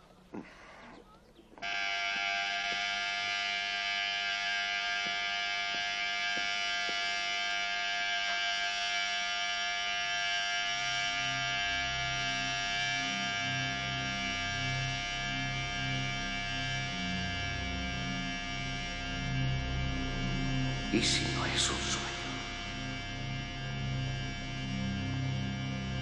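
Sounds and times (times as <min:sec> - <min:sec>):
electric hair clippers buzzing: 0:01.6 - 0:20.9, 0:22.0 - 0:26.0
low pulsing tones: 0:10.6 - 0:26.0.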